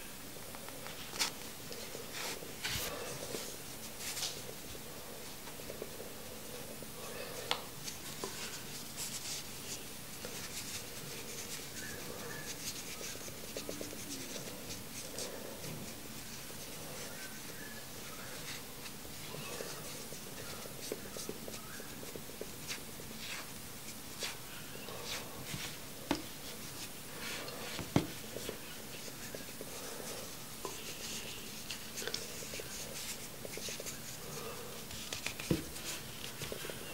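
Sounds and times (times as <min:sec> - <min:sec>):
fingers rubbing cotton wick: 0:18.3 - 0:36.5.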